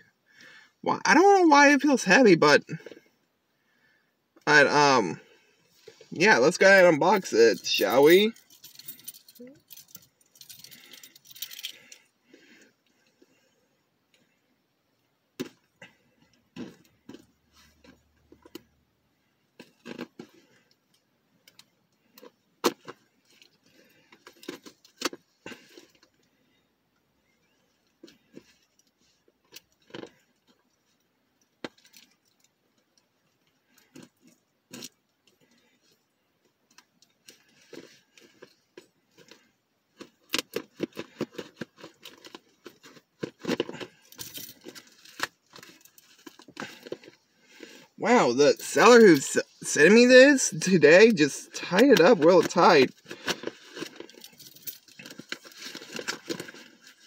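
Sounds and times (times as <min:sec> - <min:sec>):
hands handling packaging: 0:51.8 - 0:57.0.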